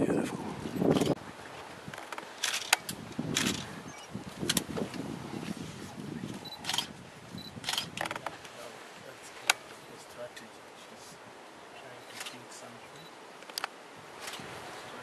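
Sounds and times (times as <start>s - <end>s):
camera shutter clicks: 6.6s - 6.9s, 7.6s - 7.9s.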